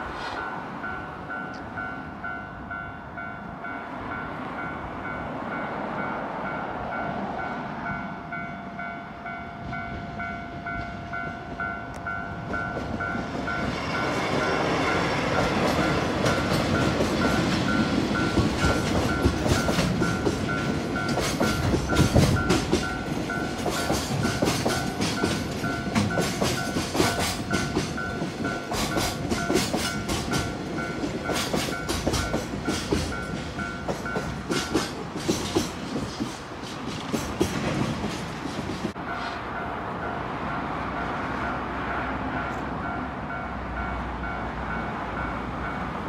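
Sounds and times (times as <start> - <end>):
crossing signal bell ringing: 0.4 - 35.0
train wheels clicking and rumbling: 10.7 - 39.3.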